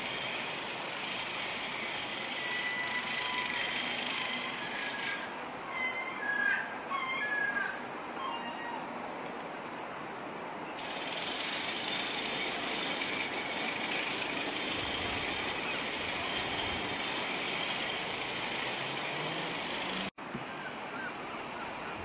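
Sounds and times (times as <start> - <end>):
high turbine whine: 0.0 - 6.9, 10.8 - 20.2.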